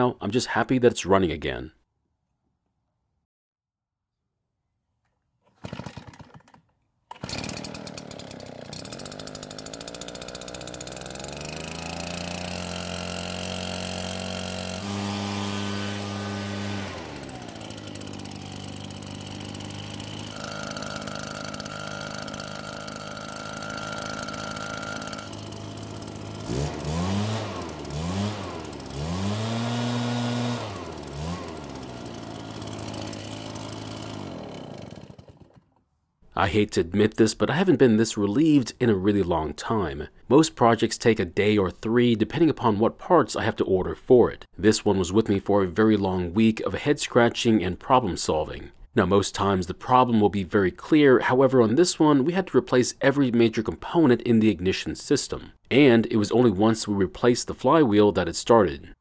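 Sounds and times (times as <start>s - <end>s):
leaf blower engine revving: 5.5s - 35.8s.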